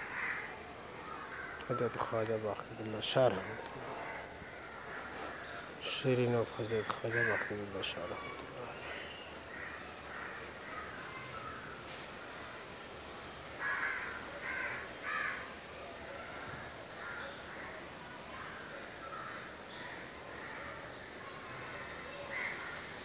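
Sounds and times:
crows cawing: 0.0s - 2.2s, 3.2s - 5.7s, 6.9s - 8.1s, 8.7s - 11.7s, 13.6s - 15.5s, 16.3s - 17.8s, 18.4s - 20.8s, 22.2s - 23.0s.

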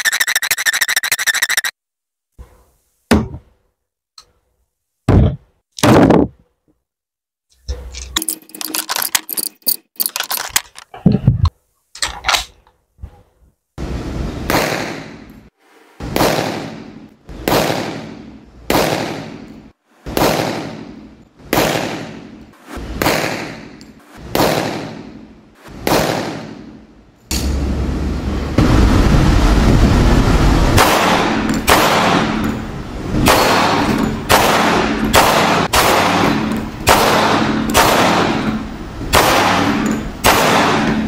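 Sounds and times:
echoing pistol shots: 21.5s - 22.2s, 24.3s - 25.1s, 25.8s - 26.6s, 30.8s - 32.5s, 33.2s - 41.0s.

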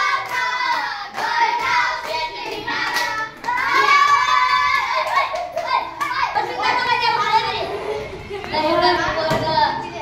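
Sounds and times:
hand-clapping: 0.0s - 6.2s
children singing: 0.0s - 7.6s.

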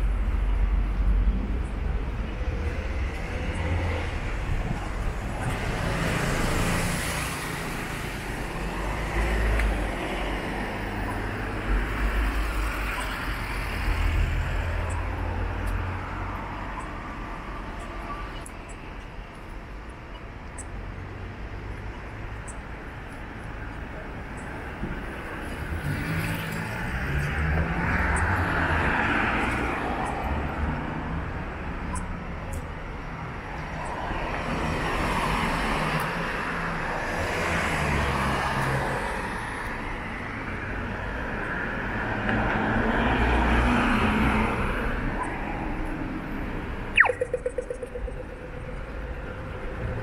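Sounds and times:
cars passing: 0.0s - 50.0s.

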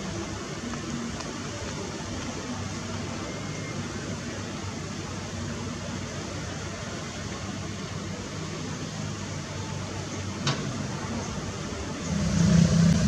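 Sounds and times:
excavator diesel engine running: 11.8s - 13.0s
louder engine: 12.0s - 13.0s.

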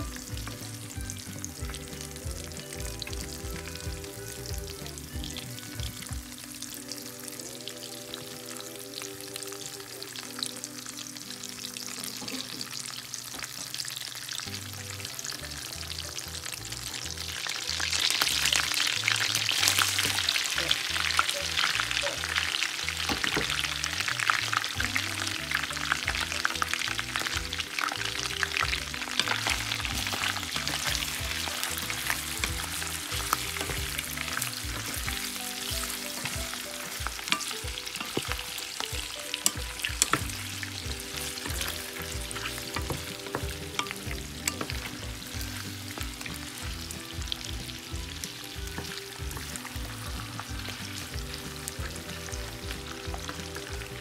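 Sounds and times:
background music: 0.0s - 54.0s
food sizzling in a pan: 0.0s - 54.0s
wooden spoon stirring: 27.0s - 46.2s.

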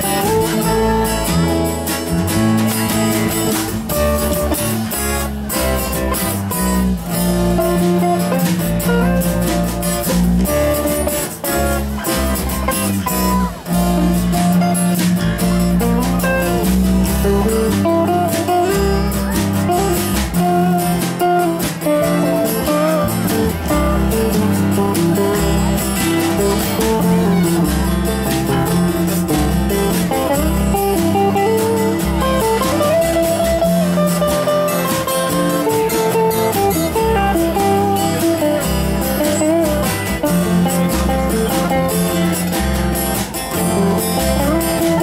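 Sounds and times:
acoustic guitar jazz: 0.0s - 45.0s
lap steel guitar: 0.0s - 45.0s.

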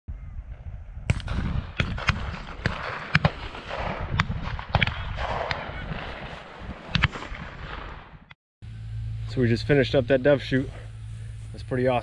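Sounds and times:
sharp bangs and cracks: 1.1s - 8.4s
low rumble: 3.4s - 12.0s.

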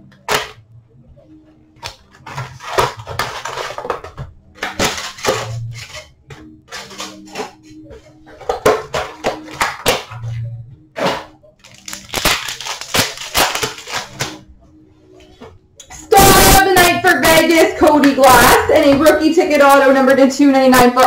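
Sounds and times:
cardboard and wrappers rustling: 1.8s - 10.4s, 11.0s - 14.4s.

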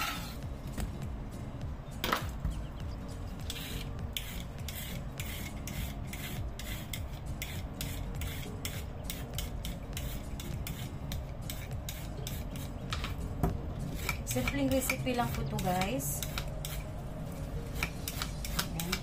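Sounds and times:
vegetable peeler scraping yam skin: 3.4s - 12.9s, 13.9s - 17.0s, 17.7s - 19.0s.

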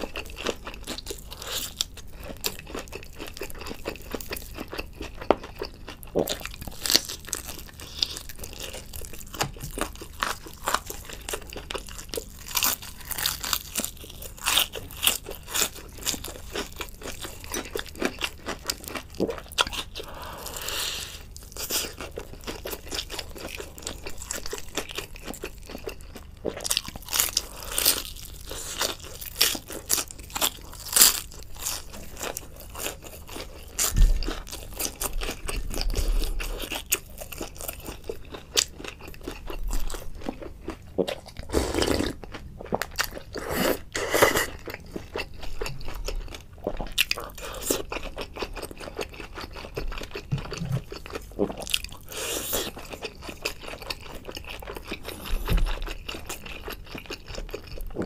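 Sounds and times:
chewing: 0.0s - 58.0s
crunchy fried chicken bites: 0.0s - 58.0s.

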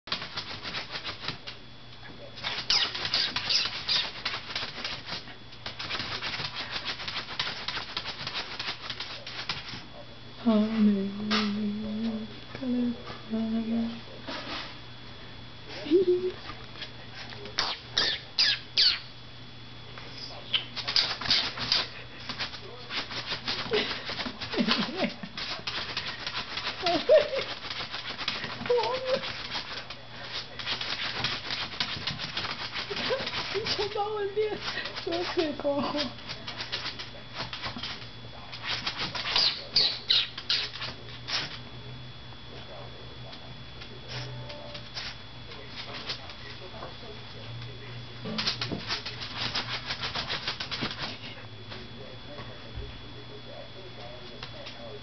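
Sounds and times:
puppy claws scratching on wood: 2.4s - 9.8s, 25.4s - 41.6s, 48.4s - 51.2s.

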